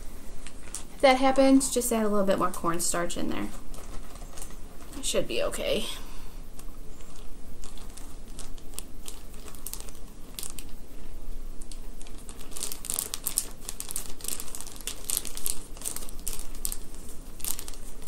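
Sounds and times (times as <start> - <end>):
hands mixing oobleck crackling: 0.0 - 10.9, 11.6 - 18.0.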